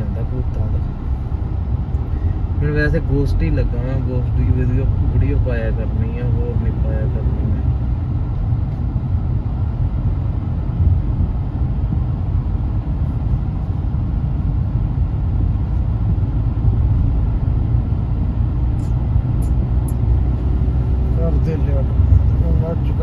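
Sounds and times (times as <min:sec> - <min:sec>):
car cabin road rumble: 0:00.0 - 0:23.0.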